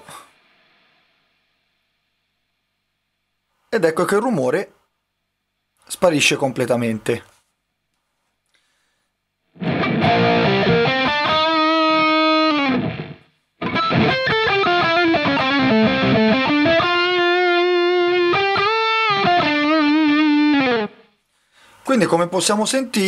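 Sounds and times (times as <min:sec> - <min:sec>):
distorted electric guitar: 0:09.5 - 0:21.2.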